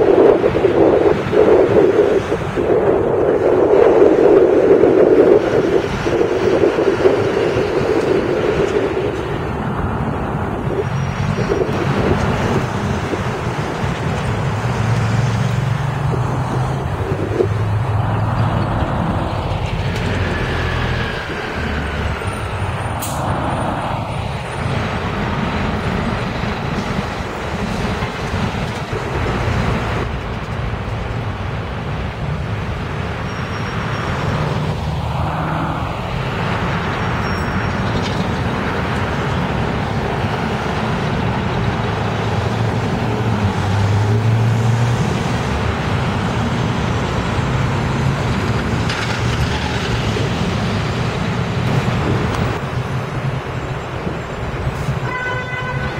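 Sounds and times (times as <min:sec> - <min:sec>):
buses driving past: 0:00.0 - 0:55.9
diesel engine drone and road noise: 0:00.0 - 0:55.9.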